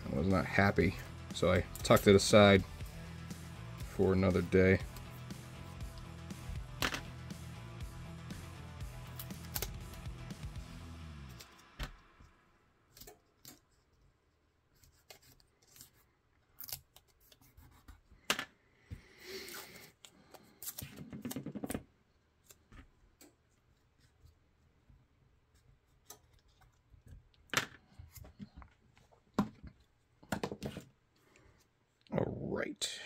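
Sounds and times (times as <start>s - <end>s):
tape rustling and tearing: 9.1s - 10.0s, 14.7s - 17.9s.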